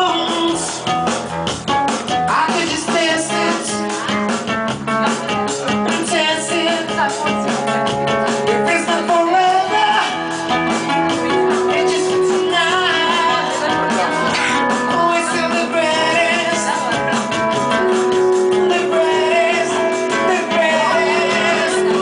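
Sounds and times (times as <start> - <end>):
person singing: 0.0 - 1.4, 2.1 - 22.0
live band playing: 0.0 - 22.0.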